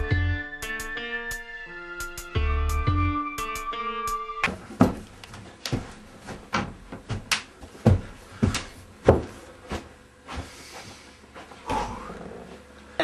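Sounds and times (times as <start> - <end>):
footsteps down indoor stairs: 4.4 - 12.7.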